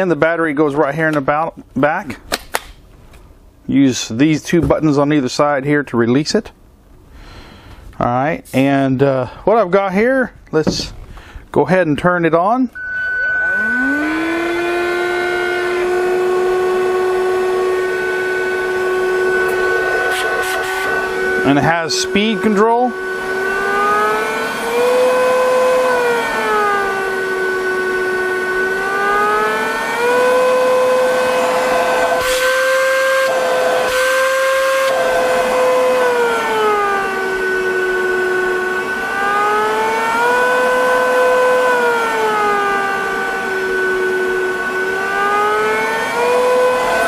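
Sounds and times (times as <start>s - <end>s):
vacuum motor whine: 12.8s - 47.0s.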